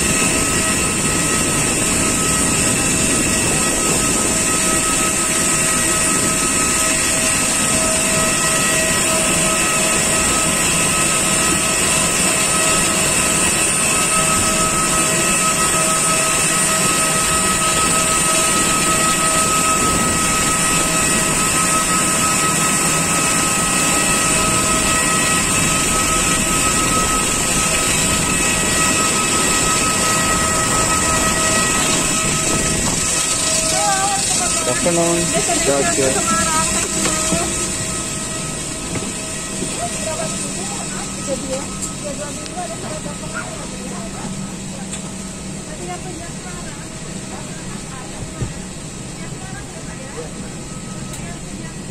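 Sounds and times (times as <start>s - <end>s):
jet turbine whine: 0.0s - 51.9s.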